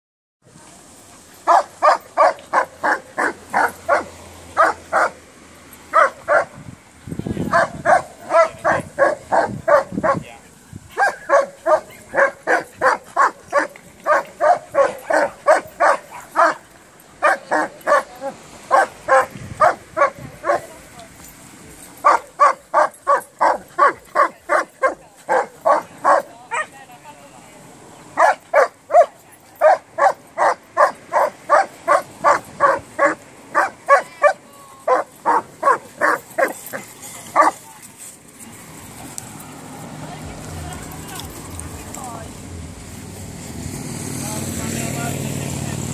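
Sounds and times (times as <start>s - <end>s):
dog barking: 1.5s - 5.2s, 5.9s - 6.6s, 7.5s - 10.2s, 11.0s - 16.6s, 17.2s - 18.1s, 18.7s - 20.7s, 22.0s - 26.7s, 28.2s - 36.8s, 37.4s - 37.6s.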